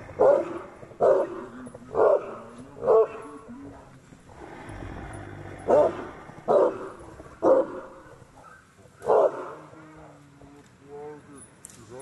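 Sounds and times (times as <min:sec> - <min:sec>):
dog barking: 0:00.2 - 0:01.4, 0:02.0 - 0:03.2, 0:05.7 - 0:06.8, 0:07.4 - 0:07.9, 0:09.0 - 0:09.7.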